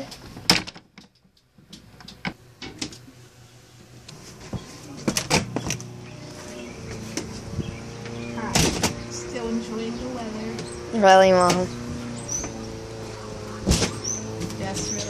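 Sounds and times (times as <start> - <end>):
steady low hum: 1.3 - 15.0
doors opening with knocks: 4.4 - 5.9, 6.9 - 9.1, 13.4 - 15.0.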